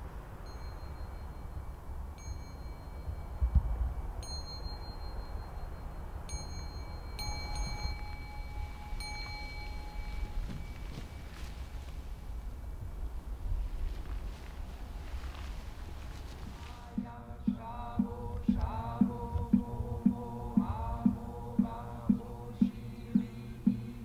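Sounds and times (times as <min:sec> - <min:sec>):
lower ringing tone: 0:00.3 - 0:12.2
small high-pitched bell ringing: 0:00.4 - 0:11.4
low rumble: 0:12.0 - 0:24.0.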